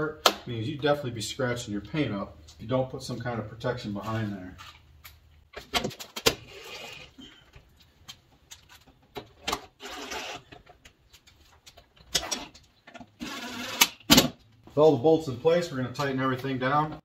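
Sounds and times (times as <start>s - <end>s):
cordless drill running: 13.2s - 13.8s.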